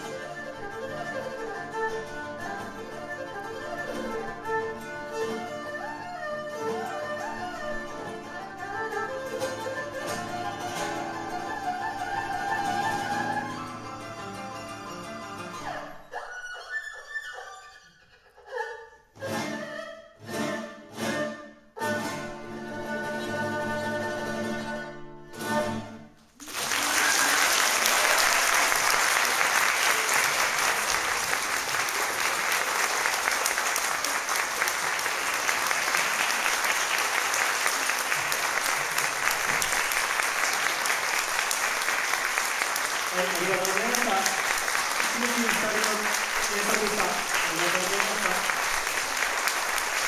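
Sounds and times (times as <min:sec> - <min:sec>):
erhu and guitars playing chords: 0:00.0 - 0:16.3, 0:19.2 - 0:26.0
audience applauding: 0:26.3 - 0:50.0.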